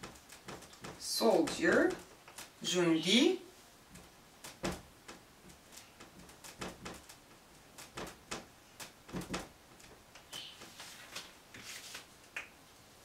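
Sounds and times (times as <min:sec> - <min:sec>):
marker squeak: 0:10.2 - 0:10.7.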